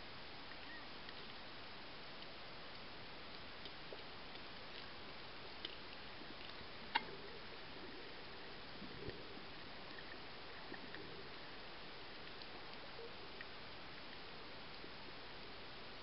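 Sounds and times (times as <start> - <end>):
sharp underwater clicks: 2.1 - 7.2.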